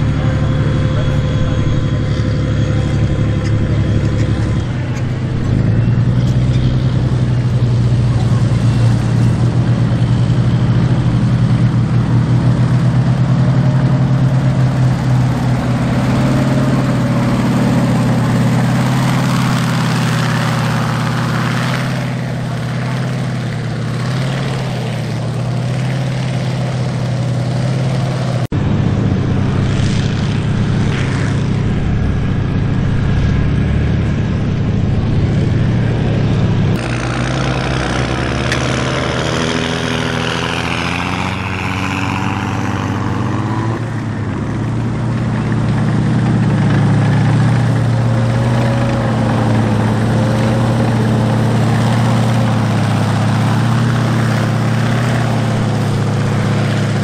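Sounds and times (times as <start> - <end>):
wavering high whine: 0.0 - 7.6, 28.6 - 38.2
tank tracks: 0.0 - 28.5
tank engine droning: 0.0 - 57.0.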